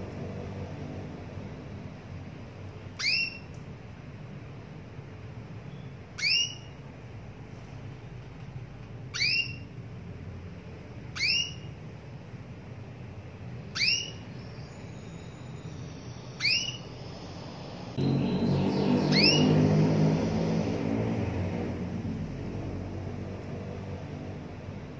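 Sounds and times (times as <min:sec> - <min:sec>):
canary chirps: 0:02.9 - 0:03.7, 0:05.4 - 0:06.9, 0:09.0 - 0:09.8, 0:11.0 - 0:11.9, 0:13.5 - 0:20.9.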